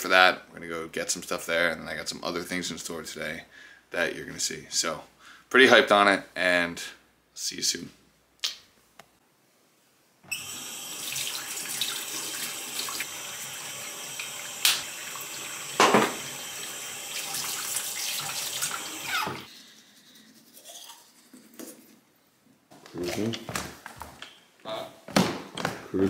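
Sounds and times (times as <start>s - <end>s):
faucet running into sink: 10.3s - 19.5s.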